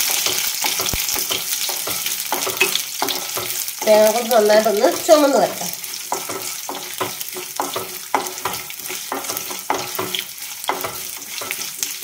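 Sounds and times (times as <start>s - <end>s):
crackles and pops: 0.0s - 1.5s
food sizzling in hot oil: 0.0s - 12.0s.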